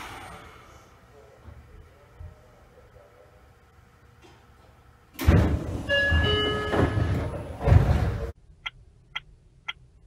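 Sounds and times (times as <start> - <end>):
loud thump: 5.2 - 5.8.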